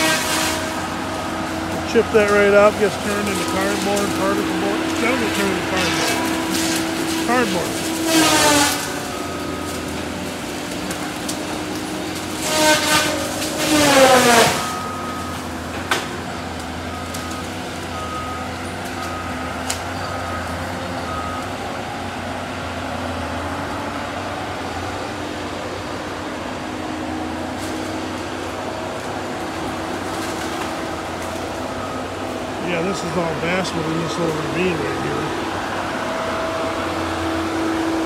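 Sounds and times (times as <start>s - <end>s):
saw head whining: 0.0s - 17.4s
heavy machine engine running: 0.0s - 38.0s
backup alarm beeping: 14.6s - 15.7s.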